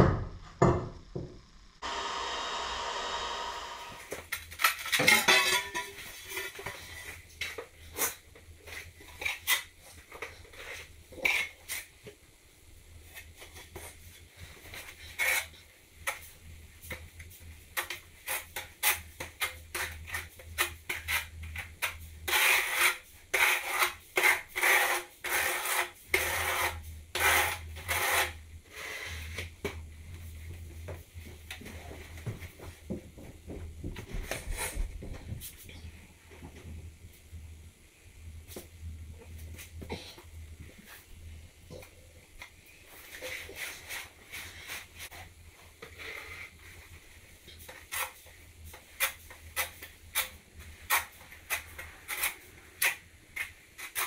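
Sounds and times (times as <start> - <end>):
trowel scraping: 19.7 - 29.4.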